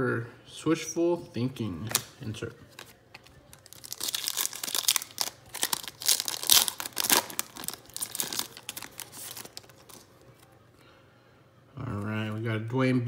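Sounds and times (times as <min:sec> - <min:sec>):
foil wrapper crinkling and tearing: 0:02.7 - 0:10.4.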